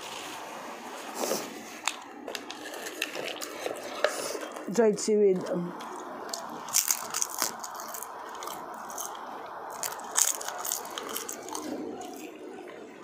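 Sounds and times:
crunching dried seaweed: 0:05.8 - 0:12.3.

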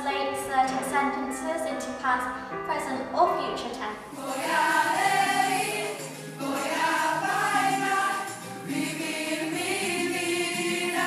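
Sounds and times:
girls choir singing: 0:04.1 - 0:11.0.

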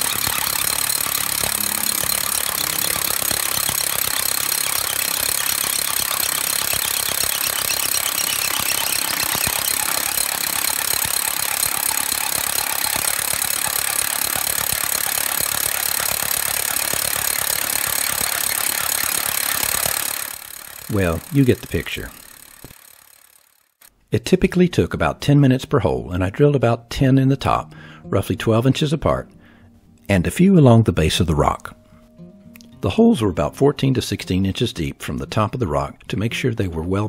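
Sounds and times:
rotary hammer drilling into rock: 0:00.0 - 0:23.9.

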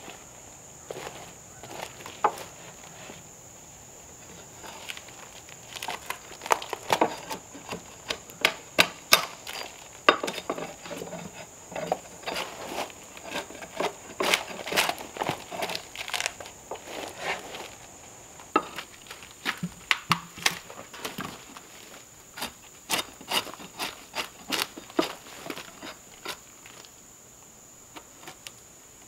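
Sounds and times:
bark cracking and scraping off wood: 0:04.2 - 0:17.8, 0:18.4 - 0:26.9.

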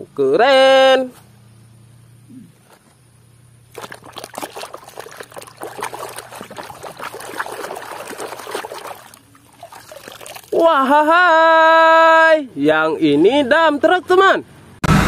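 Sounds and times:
water sloshing and splashing: 0:03.7 - 0:10.7.

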